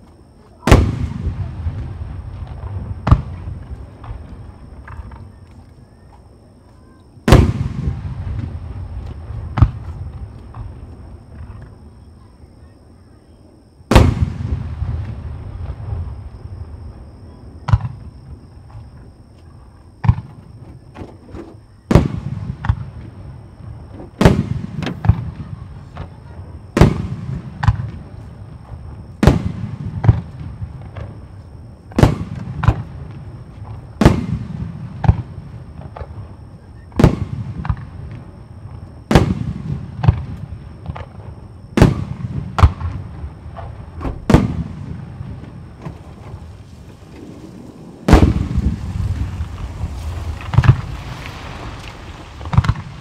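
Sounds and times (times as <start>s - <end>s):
small firework cracks: 24.1s - 28.3s, 29.2s - 31.2s, 31.9s - 36.2s, 39.1s - 53.0s
firework shells bursting: 43.6s - 53.0s.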